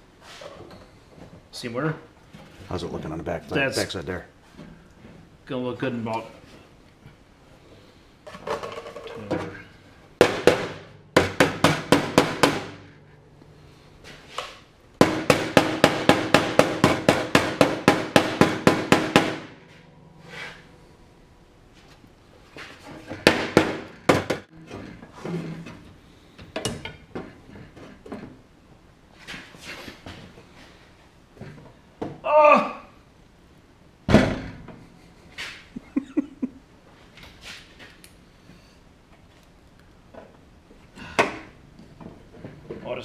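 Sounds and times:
hammer on sheet steel: 10.2 - 12.9, 15.0 - 19.8.

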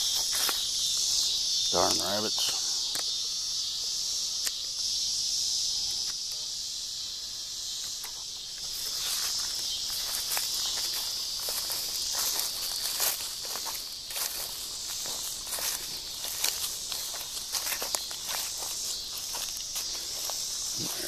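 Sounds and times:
footsteps crunching dry leaves: 0.0 - 2.5, 8.2 - 21.0
high-pitched insect chorus: 0.0 - 21.0.

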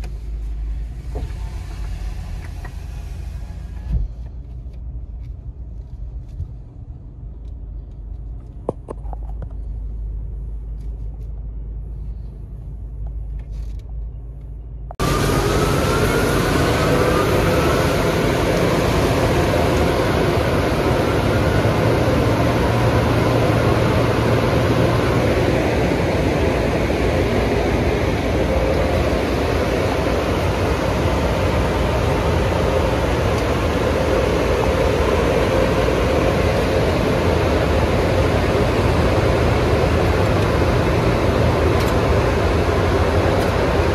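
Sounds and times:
car wash equipment rushing: 0.0 - 4.2, 15.0 - 43.9
muffled rumble inside car: 0.0 - 15.3.

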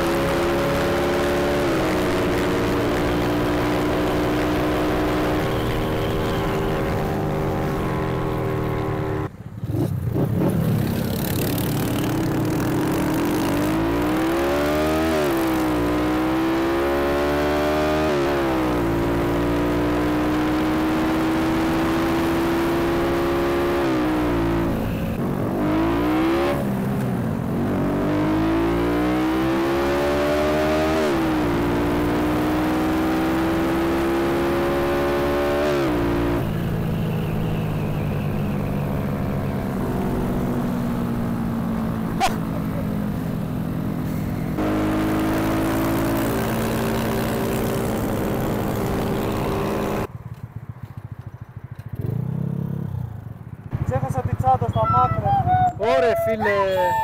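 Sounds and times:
small motorcycle engine at speed: 0.0 - 54.8.

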